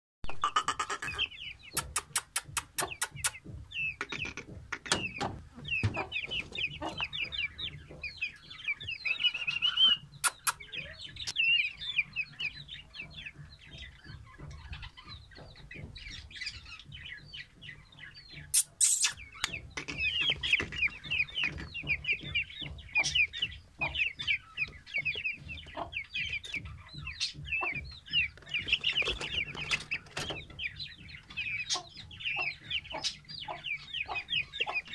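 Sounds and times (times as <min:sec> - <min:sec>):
chicks peeping: 0:00.2 - 0:34.9
sharp knocks: 0:01.8 - 0:08.4.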